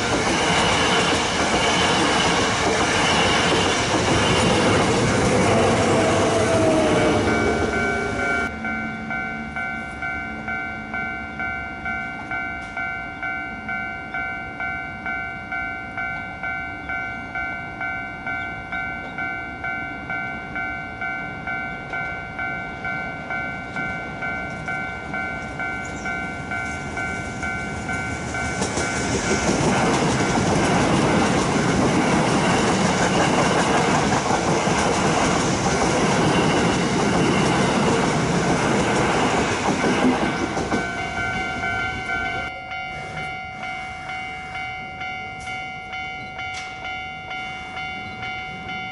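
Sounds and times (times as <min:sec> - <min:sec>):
train wheels on rails: 0:00.0 - 0:48.9
level crossing bell dinging: 0:06.0 - 0:29.0, 0:40.8 - 0:48.9.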